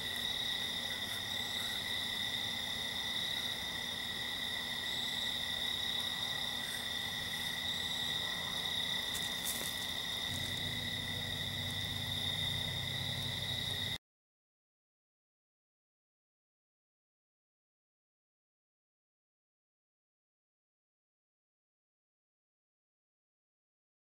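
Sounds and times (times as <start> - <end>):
crickets trilling: 0.0 - 14.0.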